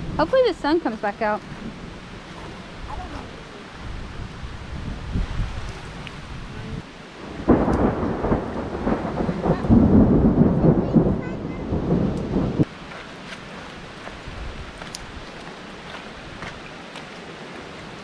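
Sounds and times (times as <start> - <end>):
thunder clap rolling: 7.2 - 12.7.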